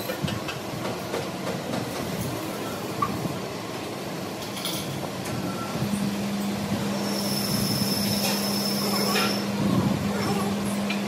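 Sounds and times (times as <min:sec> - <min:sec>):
machinery low hum: 0:02.4 - 0:11.0
high-pitched whine: 0:05.4 - 0:09.8.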